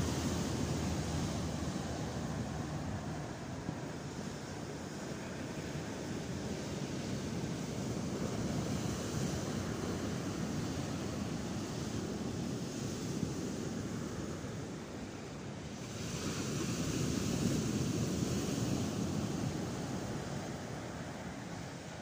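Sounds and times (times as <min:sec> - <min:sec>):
surf breaking on beach: 0:00.0 - 0:12.8.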